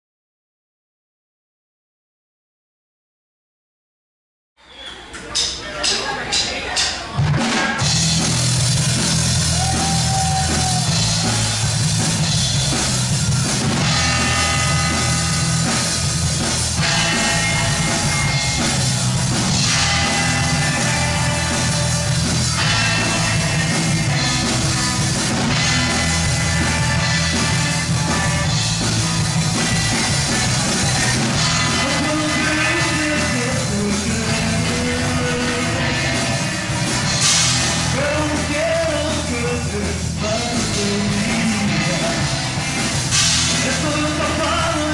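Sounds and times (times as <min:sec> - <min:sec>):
live rock band playing: 0:05.8 - 0:44.9.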